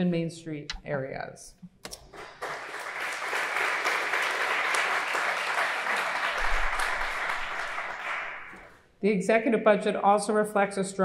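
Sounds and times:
audience applauding: 2.1 - 8.8.

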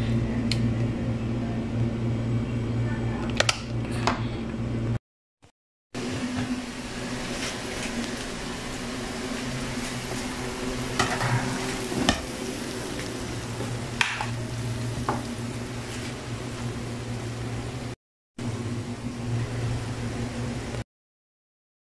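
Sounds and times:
chicken wings sizzling: 6.0 - 20.8
steady hum: 6.0 - 20.8.

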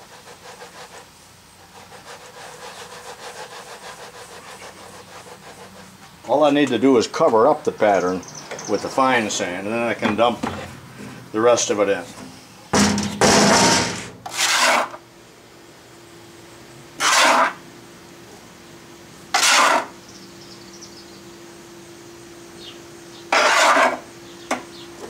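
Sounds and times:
faint steady hum: 0.0 - 25.0
sand being dumped: 17.0 - 17.6.

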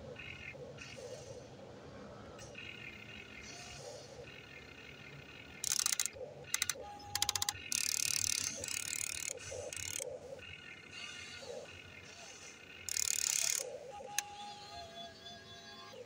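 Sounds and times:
toy excavator gear motors: 5.6 - 10.1, 12.2 - 16.0.

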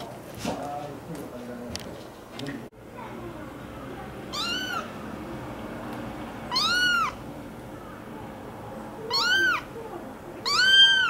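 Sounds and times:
kitten mewing: 4.3 - 5.0, 6.5 - 7.2, 9.0 - 9.8, 10.4 - 11.0.

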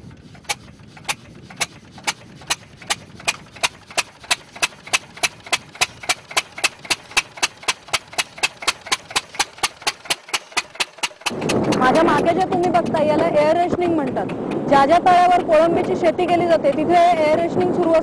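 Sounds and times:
single-cylinder engine firing: 2.8 - 12.7.

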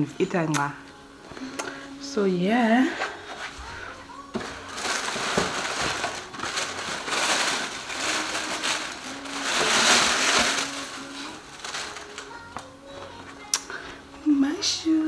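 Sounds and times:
packaging rustling and crinkling: 3.0 - 13.4.

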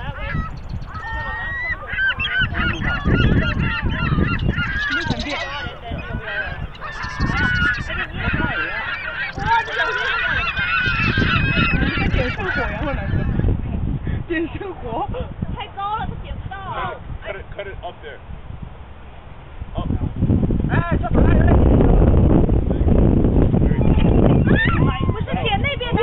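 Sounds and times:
gulls calling: 0.0 - 13.6, 23.7 - 26.0.

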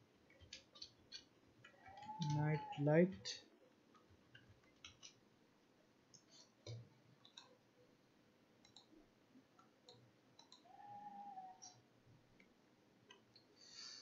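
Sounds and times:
computer mouse clicks: 0.3 - 2.8, 3.9 - 5.2, 6.1 - 7.6, 8.6 - 8.9, 9.6 - 10.7.

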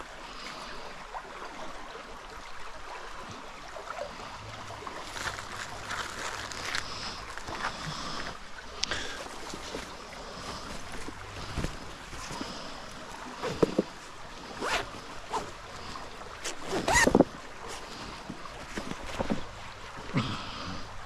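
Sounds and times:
flowing river: 0.0 - 21.0
cloth bag rustling: 5.0 - 7.8, 10.5 - 12.5, 13.4 - 13.9, 14.5 - 15.6, 16.4 - 17.8.

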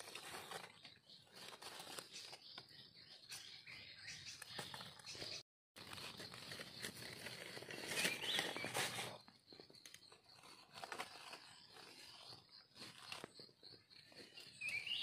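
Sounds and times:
dry leaves crackling and rustling: 5.8 - 9.2.

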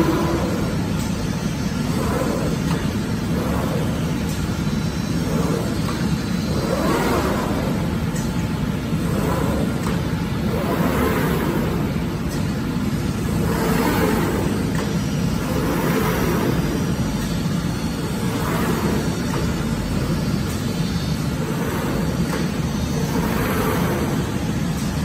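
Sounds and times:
machine low mechanical hum: 0.0 - 25.0.

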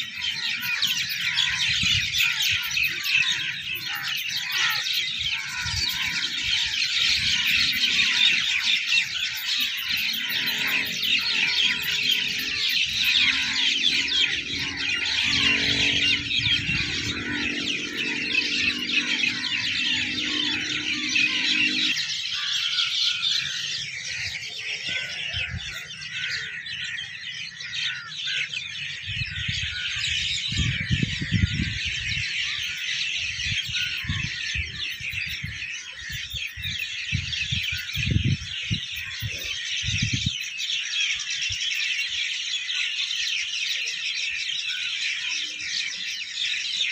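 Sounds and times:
birds chirping and chattering: 0.0 - 46.9
low steady hum: 10.3 - 22.5.

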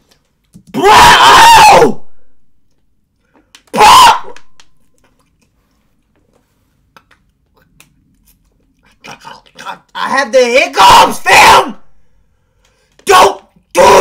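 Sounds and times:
man yelling: 0.8 - 2.0, 3.8 - 4.3, 10.0 - 11.8, 13.0 - 14.0.

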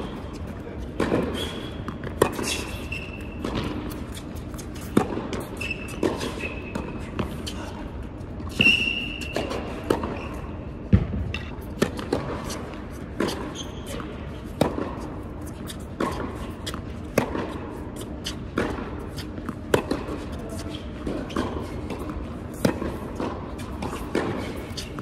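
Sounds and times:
racquets striking tennis ball: 0.0 - 7.6, 8.2 - 25.0
ball bouncing on court: 3.2 - 7.4, 8.5 - 15.2, 16.0 - 17.8, 18.5 - 20.4.

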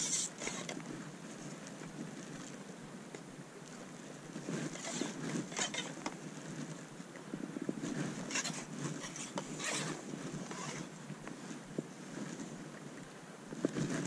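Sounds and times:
wind buffeting microphone: 4.3 - 14.0
rustling swishes: 7.7 - 12.5.

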